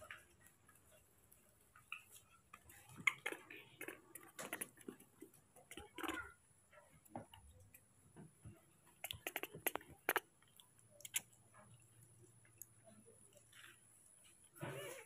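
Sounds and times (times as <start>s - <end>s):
baby monkey sucking a bottle: 1.9s - 6.3s, 8.8s - 11.9s.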